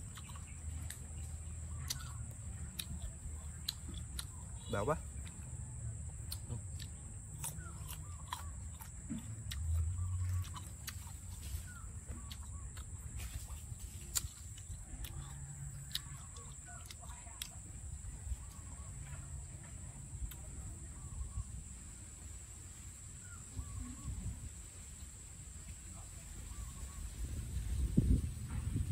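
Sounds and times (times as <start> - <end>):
chewing crisp mango: 0.0 - 21.8
faint bird calls: 23.0 - 24.9, 25.9 - 27.8.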